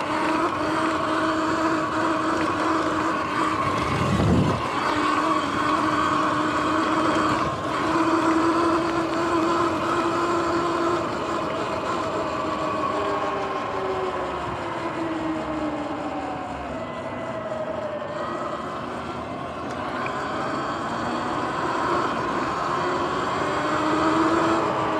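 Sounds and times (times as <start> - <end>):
electric motor whining: 0.0 - 24.9
tyre and wind noise: 3.2 - 6.4.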